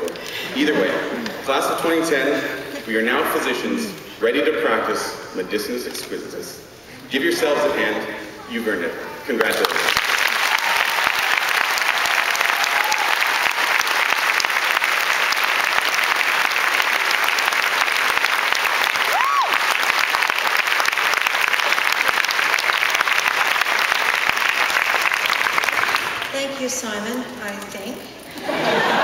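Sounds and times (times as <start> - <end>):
crowd applauding: 9.3 - 26.6.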